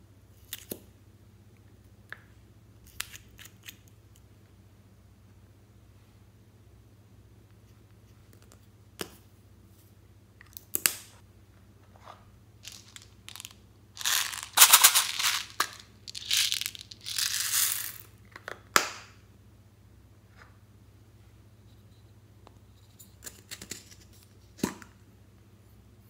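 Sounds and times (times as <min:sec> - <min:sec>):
beads rattling in plastic case: 0:12.6 - 0:18.1.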